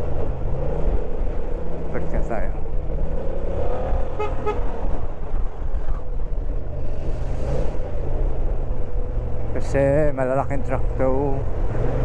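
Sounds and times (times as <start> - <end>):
horn toots: 4.2 - 4.7.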